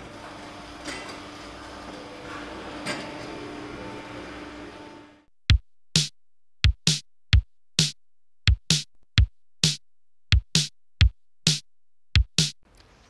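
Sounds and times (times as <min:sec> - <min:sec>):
drum machine bass kicks: 0:05.5 - 0:12.6
snare-like hits: 0:12.4 - 0:12.6.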